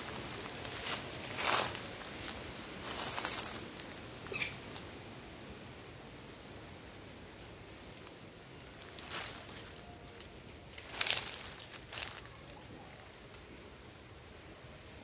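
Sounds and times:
leaves rustling: 0.0s - 13.1s
high-pitched insect drone: 0.0s - 15.0s.

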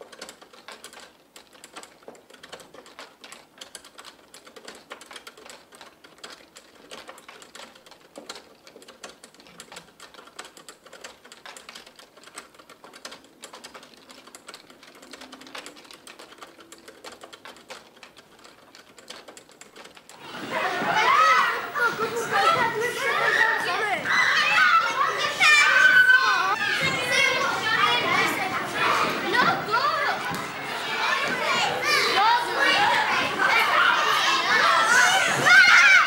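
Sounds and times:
bicycle chain clicking: 0.0s - 20.2s.

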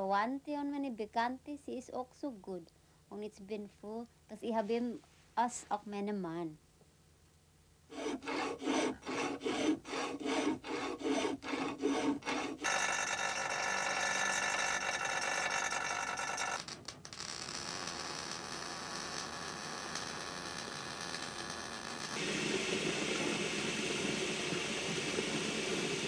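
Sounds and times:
hand tool rasping: 7.9s - 15.4s
grinder on metal: 7.9s - 16.7s, 17.5s - 22.3s.

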